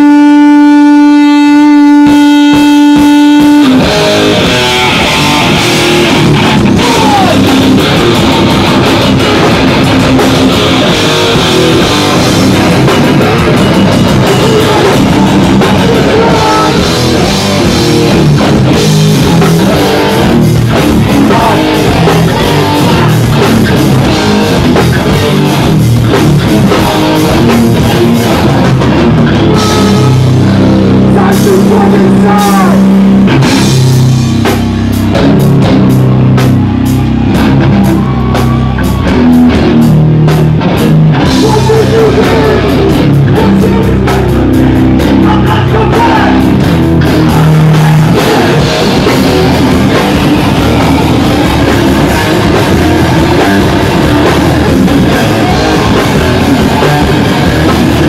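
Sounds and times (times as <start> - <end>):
live rock band playing: 0.0 - 58.0
fast drum hits: 45.0 - 58.0.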